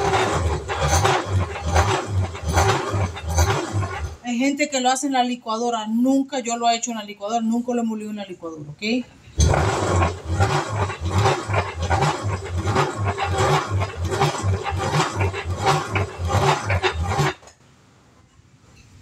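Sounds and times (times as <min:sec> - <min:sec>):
hand-cranked corn grinder grinding: 0:00.0 - 0:04.2, 0:09.4 - 0:17.5.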